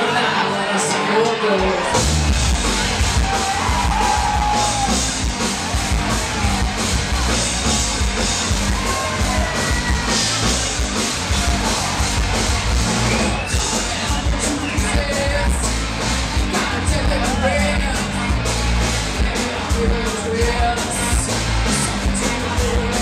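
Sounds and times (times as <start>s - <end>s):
bass guitar: 0.0s - 23.0s
distorted electric guitars: 0.0s - 23.0s
drum kit: 1.0s - 23.0s
person singing and shouting: 16.4s - 23.0s.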